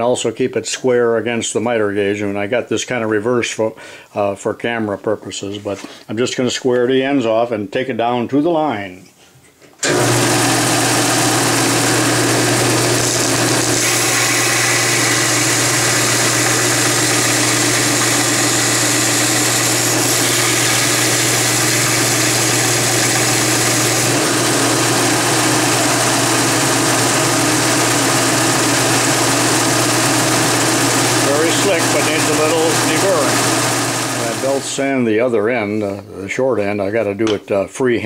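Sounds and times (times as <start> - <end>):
belt sander running: 9.8 - 34.8
metal grinding on sanding belt: 9.9 - 34.7.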